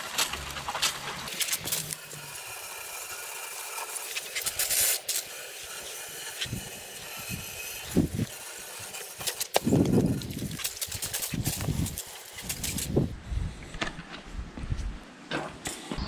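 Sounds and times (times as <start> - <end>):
pressure sprayer hissing: 1.2 - 13.1.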